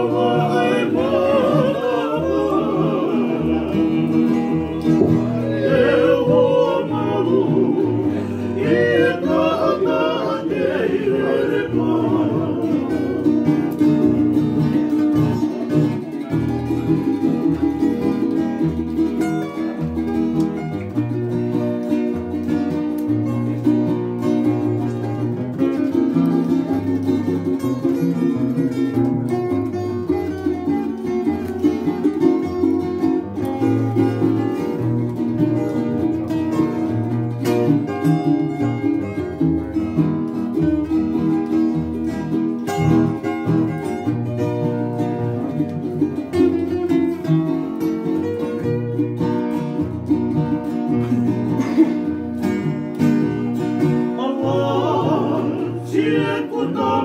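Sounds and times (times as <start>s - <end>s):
men singing together: 0.0s - 13.4s, 54.2s - 57.0s
guitars and ukulele strumming: 0.0s - 57.0s.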